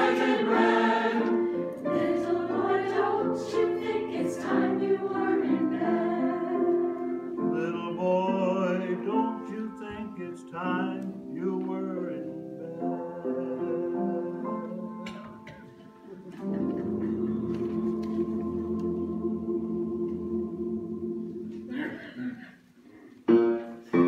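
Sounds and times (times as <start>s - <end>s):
mixed choir singing: 0.0s - 7.5s, 16.4s - 21.8s.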